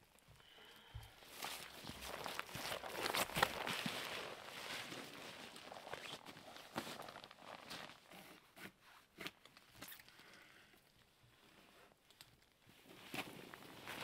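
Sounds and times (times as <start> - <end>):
footsteps crunching in snow: 1.3 - 7.3.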